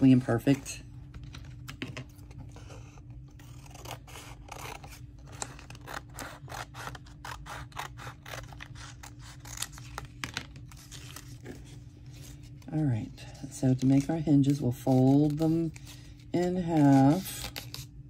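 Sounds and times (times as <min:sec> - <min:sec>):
scissors snipping paper: 0:03.4 - 0:11.0, 0:13.7 - 0:15.8, 0:16.4 - 0:17.9.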